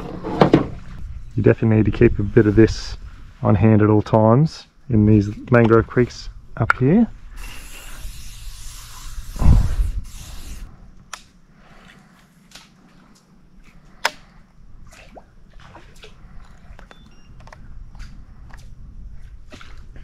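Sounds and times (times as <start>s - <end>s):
aerosol spray hiss: 7.3s - 10.7s.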